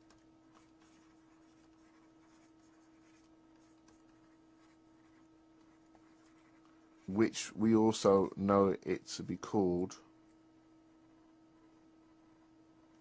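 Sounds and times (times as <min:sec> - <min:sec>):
stylus scratching on tablet: 0:00.0 - 0:07.4, 0:10.2 - 0:13.0
faint hum: 0:00.0 - 0:13.0.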